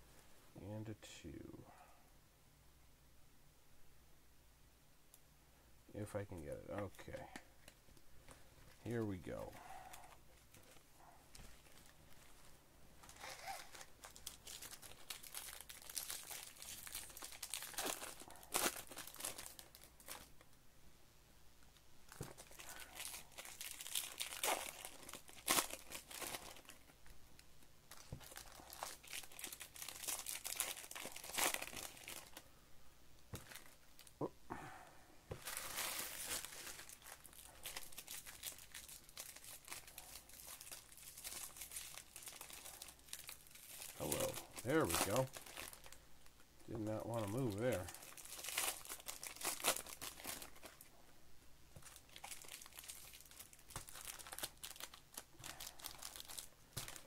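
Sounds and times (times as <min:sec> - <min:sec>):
plastic wrapper tearing and crinkling: 0:13.0 - 0:20.5, 0:22.1 - 0:32.4, 0:33.3 - 0:34.1, 0:35.3 - 0:46.0, 0:46.7 - 0:50.9, 0:51.8 - 0:57.0.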